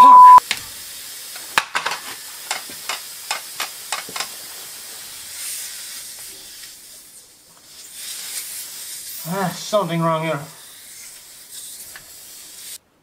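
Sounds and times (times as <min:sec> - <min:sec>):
air hissing from tyre valve: 0:00.4 - 0:01.5, 0:02.1 - 0:09.8, 0:10.6 - 0:12.8
small clicks and knocks: 0:01.4 - 0:04.4.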